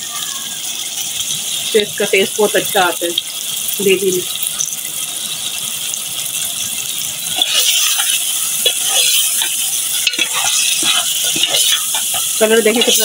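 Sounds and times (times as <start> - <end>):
curry sizzling in a pot: 0.0 - 13.0
ladle scraping and clinking pot: 7.4 - 13.0.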